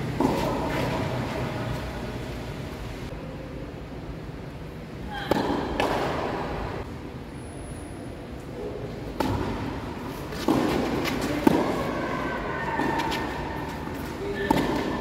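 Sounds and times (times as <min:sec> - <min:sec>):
tennis ball bouncing on court: 0:00.0 - 0:01.2, 0:05.3 - 0:06.6, 0:09.2 - 0:12.0, 0:12.8 - 0:15.0
tennis ball hit by racket: 0:00.1 - 0:01.2, 0:05.3 - 0:06.6, 0:09.2 - 0:12.0.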